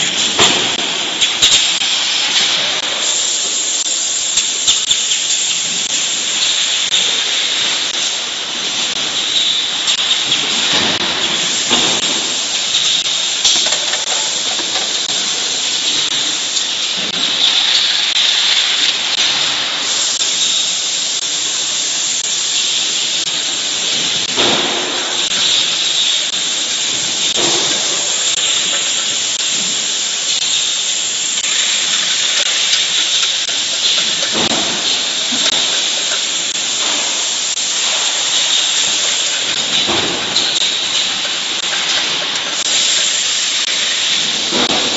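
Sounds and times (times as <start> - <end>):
bottling machinery hissing: 0.0 - 44.9
machinery knocks and clatter: 9.9 - 15.2, 44.1 - 44.9.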